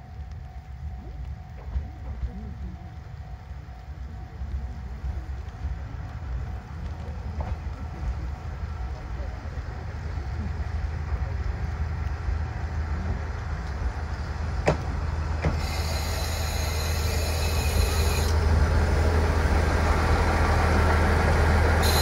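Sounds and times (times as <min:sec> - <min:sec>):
train engine and running rumble: 0:00.0 - 0:22.0
high-pitched squeal of running gear: 0:15.5 - 0:18.4, 0:21.8 - 0:22.0.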